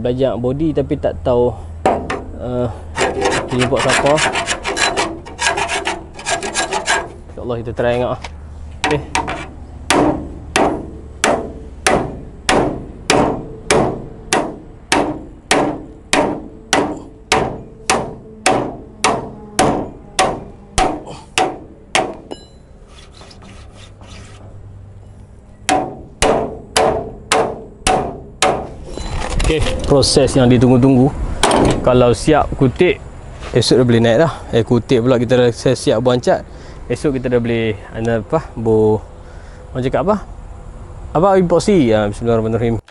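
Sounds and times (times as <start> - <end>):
hammer beating steel: 1.8 - 2.4, 8.8 - 22.7, 25.7 - 28.8.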